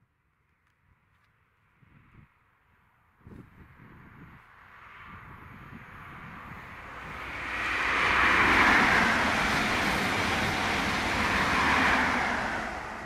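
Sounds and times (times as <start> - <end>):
train passing at speed: 4.4 - 13.0.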